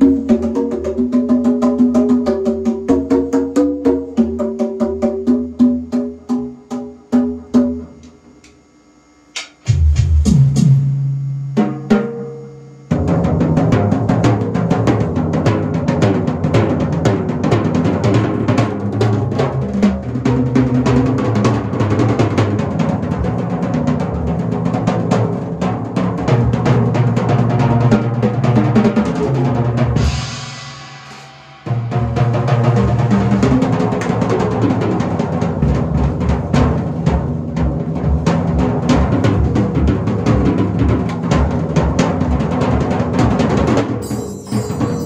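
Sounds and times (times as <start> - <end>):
drum kit playing: 0.0 - 8.1, 9.4 - 45.0
cymbal ringing: 30.0 - 32.2, 44.0 - 45.0.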